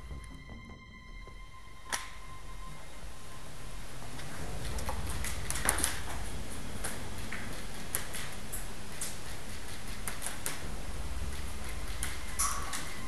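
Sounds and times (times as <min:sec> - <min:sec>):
steady low rumble: 0:00.0 - 0:07.8, 0:10.6 - 0:13.0.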